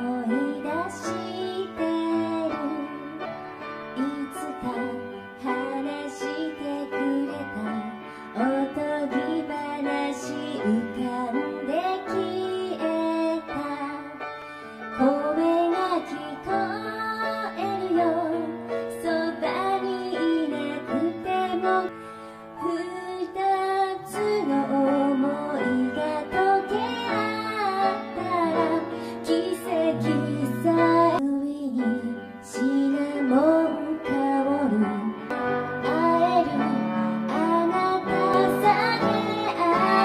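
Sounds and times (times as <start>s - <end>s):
woman singing into microphone: 0.0s - 3.3s, 3.9s - 22.0s, 22.6s - 40.0s
instrumental accompaniment: 31.9s - 40.0s.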